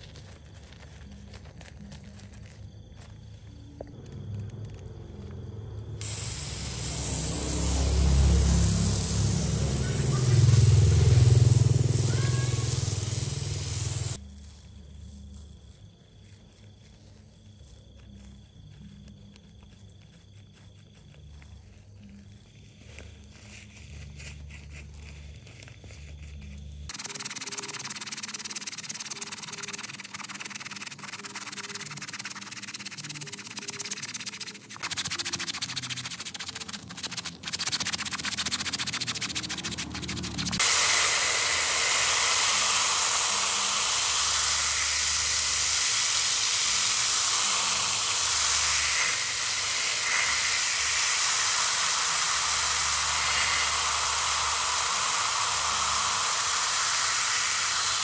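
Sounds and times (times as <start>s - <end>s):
stiff brush scrubbing rug: 6.0s - 14.2s, 18.9s - 56.2s
water spray hissing: 6.0s - 14.2s, 26.9s - 58.0s.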